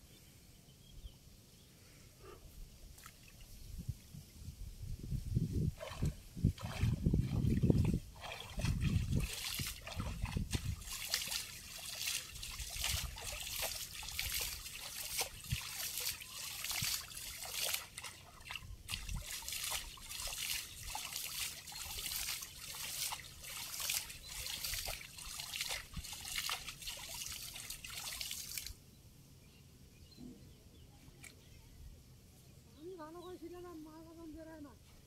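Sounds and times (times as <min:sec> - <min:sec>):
water splashing off fishing net: 0:08.2 - 0:28.7.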